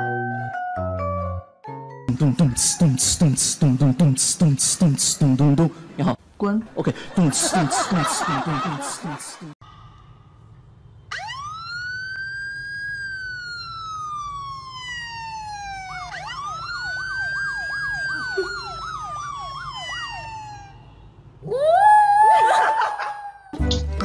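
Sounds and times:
siren wailing from phone: 11.1s - 21.0s.

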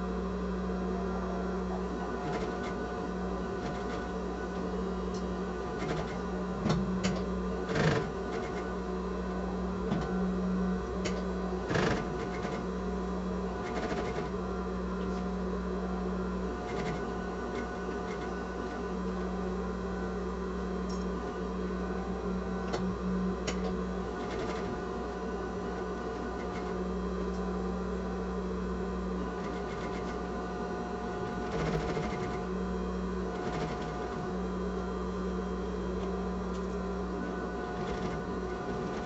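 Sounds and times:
sewing machine running: 7.1s - 8.7s, 11.6s - 12.8s, 13.6s - 14.4s, 31.1s - 32.5s, 33.3s - 34.4s.

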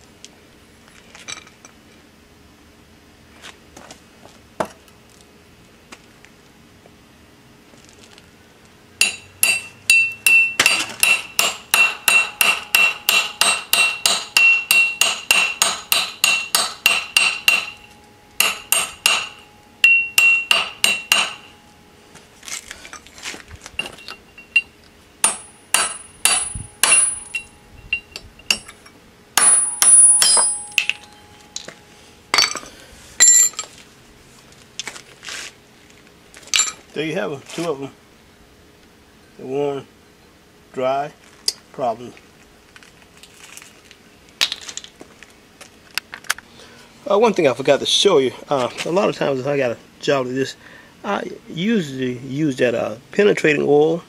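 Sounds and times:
hammer striking steel: 9.0s - 21.7s, 23.8s - 33.7s.

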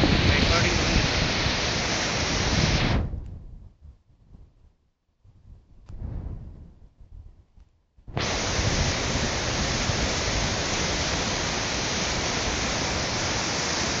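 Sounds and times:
water rushing down a spillway: 0.0s - 3.0s, 8.2s - 14.0s.

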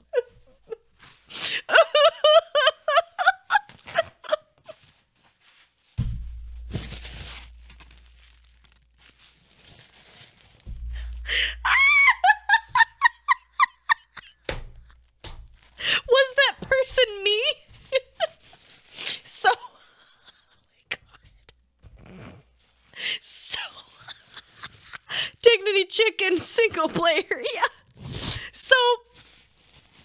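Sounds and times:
woman laughing: 0.0s - 0.8s, 1.5s - 4.8s, 11.0s - 14.5s, 15.8s - 18.4s, 23.7s - 25.2s
dull low thumps: 6.0s - 8.9s, 10.6s - 13.0s.

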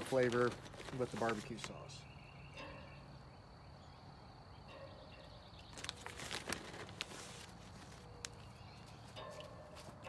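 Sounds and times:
wood chips rustling: 0.0s - 1.9s, 5.7s - 8.6s.

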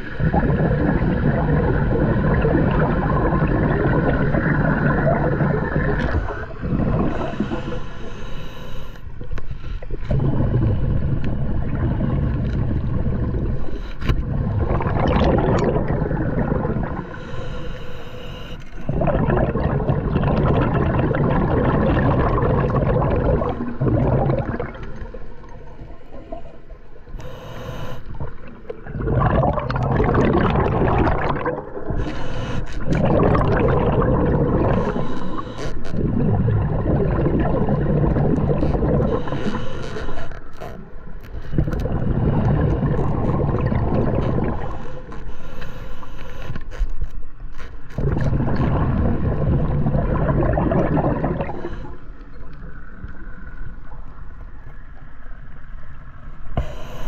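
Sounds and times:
bubbles rushing underwater: 0.0s - 7.6s, 9.9s - 17.2s, 18.8s - 26.5s, 28.1s - 32.1s, 32.8s - 39.5s, 41.5s - 45.0s, 48.0s - 54.4s
diver breathing through regulator: 6.2s - 11.2s, 17.0s - 18.9s, 27.2s - 28.4s, 31.9s - 33.3s, 34.4s - 36.0s, 39.0s - 40.8s, 44.3s - 46.8s, 51.1s - 52.3s, 56.6s - 57.0s.

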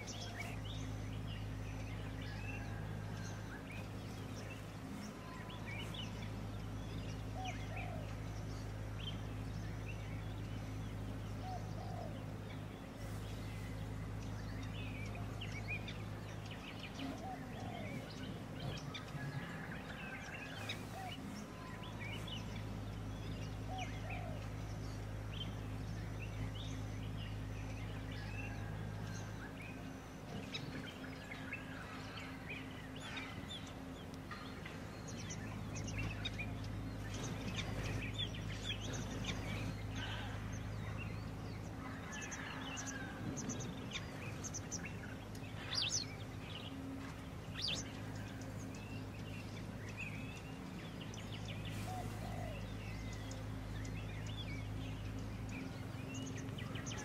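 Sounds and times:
birds chirping: 0.0s - 57.0s
low hum: 0.0s - 57.0s.

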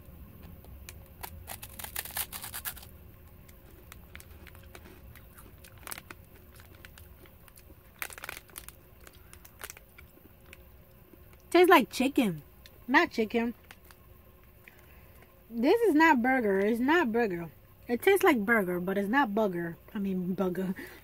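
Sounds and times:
crunchy snack bites: 0.4s - 11.5s
plastic wrapper crackling: 0.8s - 11.4s, 13.6s - 14.0s.

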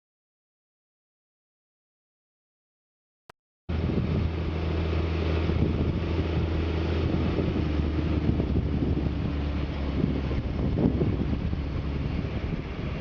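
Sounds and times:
tractor diesel engine under load: 3.7s - 13.0s.

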